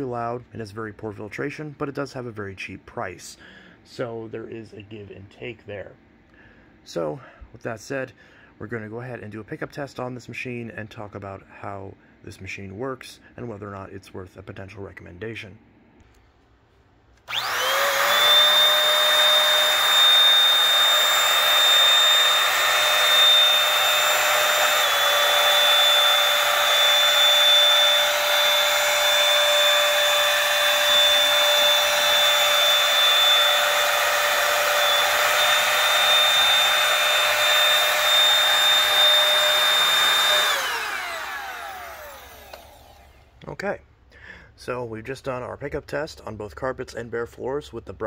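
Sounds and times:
stick vacuum whining: 17.2s - 43.4s.

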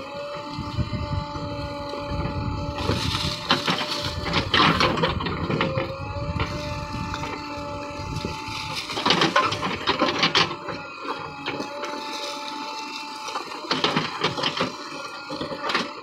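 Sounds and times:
digger engine drone: 0.0s - 16.0s
bucket crunching through stones: 0.4s - 16.0s.

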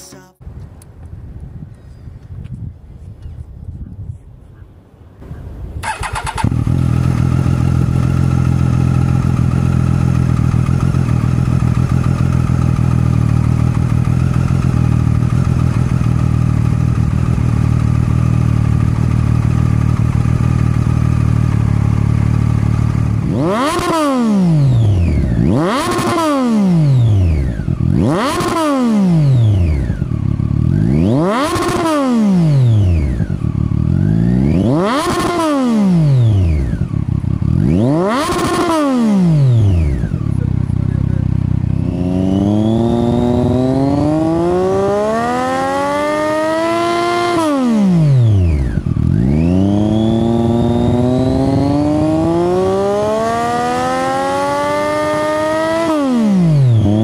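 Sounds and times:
motorcycle engine idling: 5.2s - 26.2s, 26.8s - 35.4s, 36.0s - 45.4s, 48.0s - 52.7s
engine revving in sharp blips: 5.8s - 16.2s, 22.2s - 57.0s.

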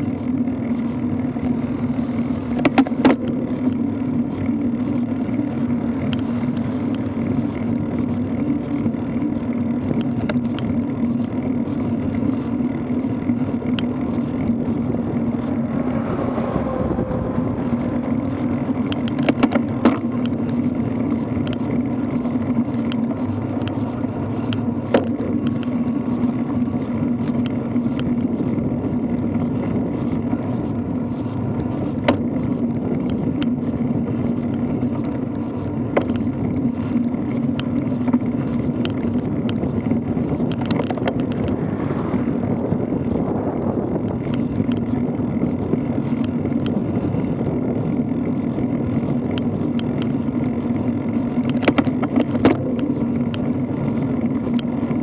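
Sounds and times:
bike tyres rolling on asphalt: 0.0s - 55.0s
wind on microphone: 0.0s - 55.0s.

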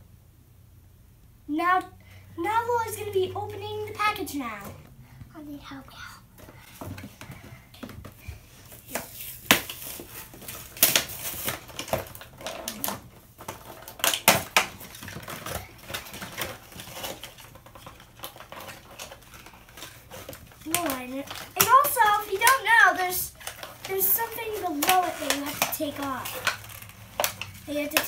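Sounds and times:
plastic packaging crackling: 8.5s - 28.0s.

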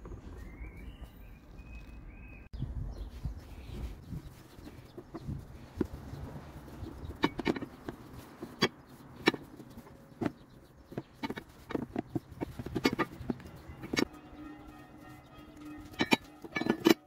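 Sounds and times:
handling clicks and knocks: 3.6s - 17.0s.

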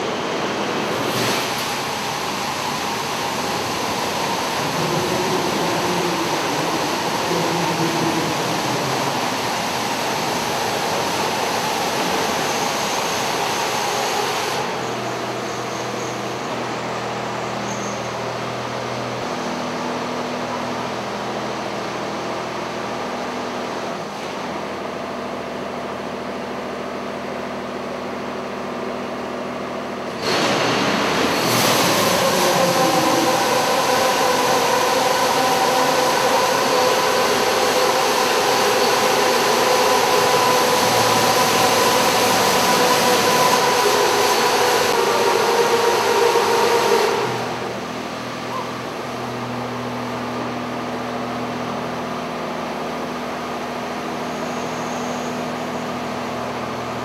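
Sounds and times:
car wash machine hum: 0.0s - 15.6s, 18.6s - 57.0s
pump whine: 30.0s - 57.0s.

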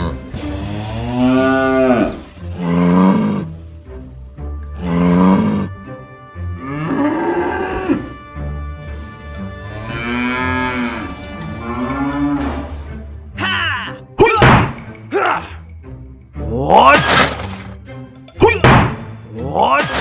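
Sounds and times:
soft background music: 0.0s - 20.0s
cattle mooing: 0.6s - 3.5s, 6.6s - 8.2s, 9.6s - 12.7s.

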